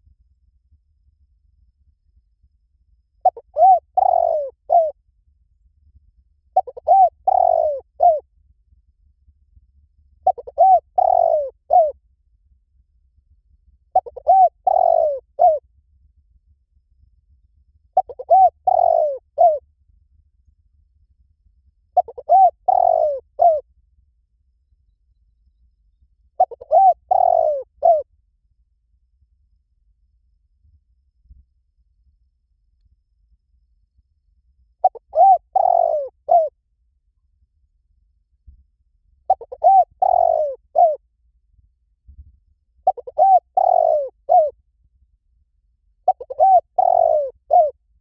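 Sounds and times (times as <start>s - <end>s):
dove cooing: 3.2s - 5.0s, 6.6s - 8.2s, 10.2s - 12.0s, 13.9s - 15.6s, 18.0s - 19.6s, 22.0s - 23.6s, 26.4s - 28.1s, 34.8s - 36.6s, 39.3s - 41.0s, 42.8s - 44.6s, 46.0s - 47.8s.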